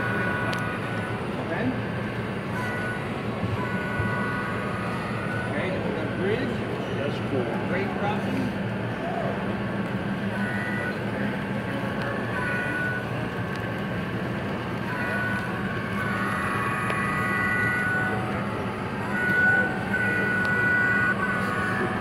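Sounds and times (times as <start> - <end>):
model train horn blasts: 2.5 - 5.6, 10.3 - 11.0, 14.8 - 22.0.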